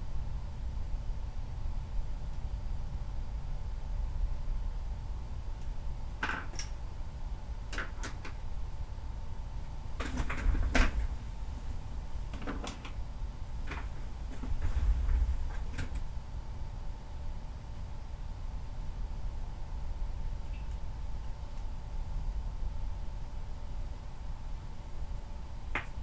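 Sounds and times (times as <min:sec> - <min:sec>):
sharp clicks and knocks: 0:10.0 - 0:11.1, 0:12.3 - 0:13.0, 0:25.7 - 0:26.0.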